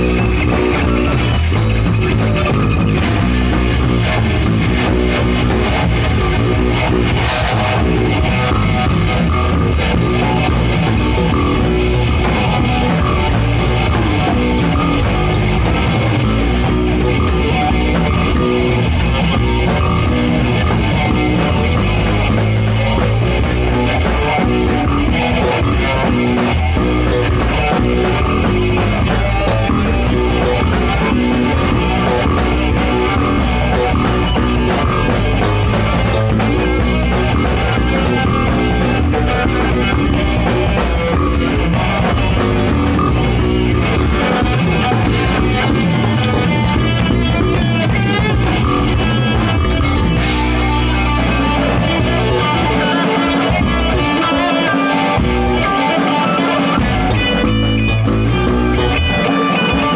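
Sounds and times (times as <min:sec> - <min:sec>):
drum kit: 0:00.0 - 0:59.9
electric guitars: 0:00.0 - 0:59.9.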